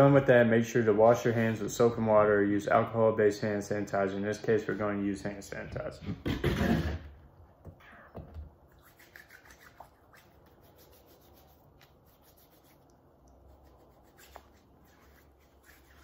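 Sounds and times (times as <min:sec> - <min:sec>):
hands rubbing together: 0:08.7 - 0:16.0.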